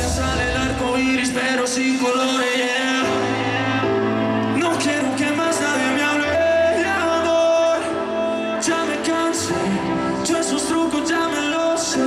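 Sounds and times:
live pop band music: 0.0s - 12.0s
man singing: 0.0s - 12.0s.

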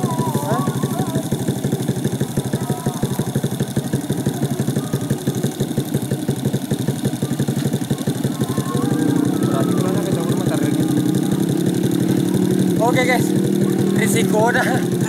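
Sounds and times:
motorcycle engine idling: 0.0s - 15.0s.

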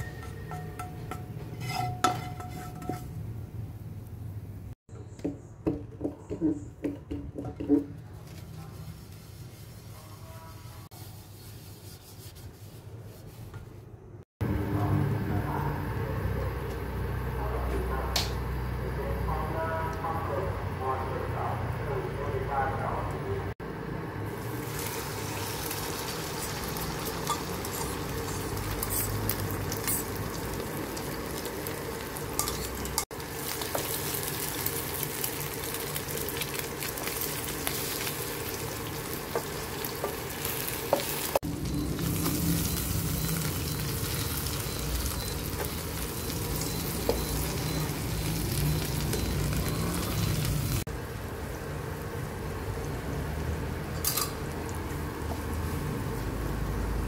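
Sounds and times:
spatula tapping and scraping pan: 0.0s - 3.2s, 5.2s - 8.0s, 39.3s - 41.4s
omelette sizzling in hot oil: 24.3s - 50.8s.

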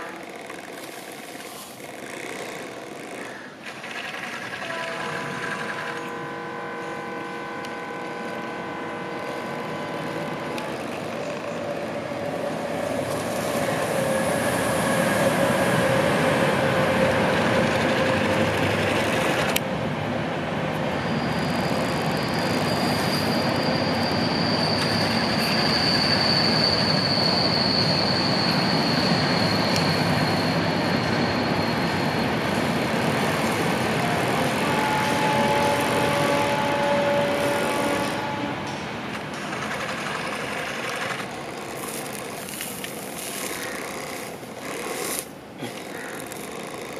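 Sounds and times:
toy hydraulic pump whining: 0.0s - 6.2s, 39.8s - 46.9s.

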